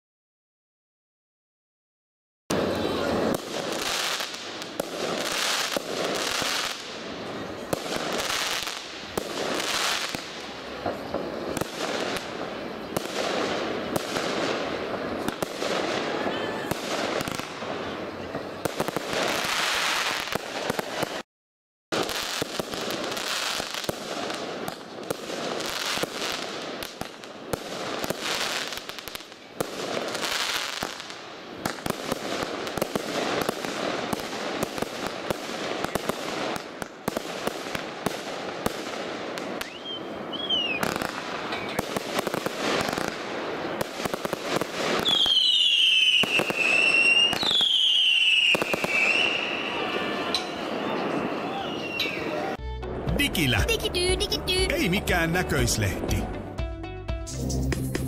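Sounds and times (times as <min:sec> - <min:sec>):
high whistles dropping in pitch: 0:45.1 - 0:52.4.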